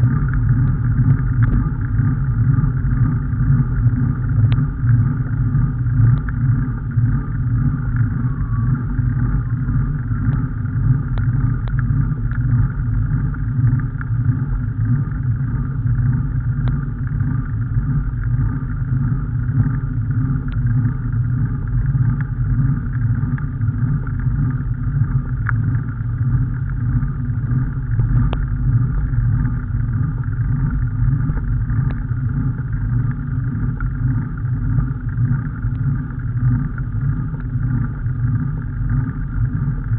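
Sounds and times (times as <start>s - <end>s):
vehicle rumble: 0.0s - 39.9s
faint ticks: 0.2s - 2.0s, 4.5s - 5.4s, 6.0s - 6.6s, 10.2s - 14.6s, 16.6s - 18.8s, 19.6s - 32.2s, 32.8s - 39.9s.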